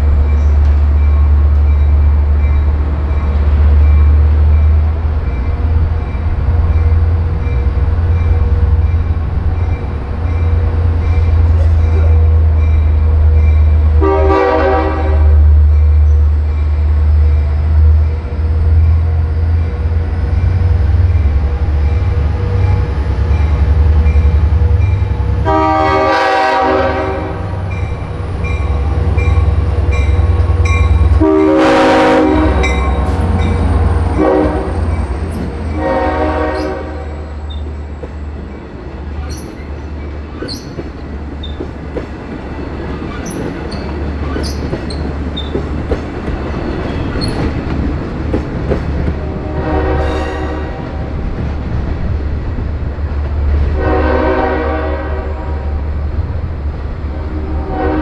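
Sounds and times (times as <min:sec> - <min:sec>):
locomotive rumble: 0:00.0 - 0:58.0
crossing bell ringing: 0:00.2 - 0:13.9, 0:27.3 - 0:37.3
train horn: 0:13.9 - 0:15.5, 0:25.3 - 0:27.6, 0:29.4 - 0:35.0, 0:35.7 - 0:37.4, 0:49.1 - 0:51.0, 0:53.7 - 0:56.0, 0:57.1 - 0:58.0
train wheels clattering on rails: 0:36.4 - 0:53.8.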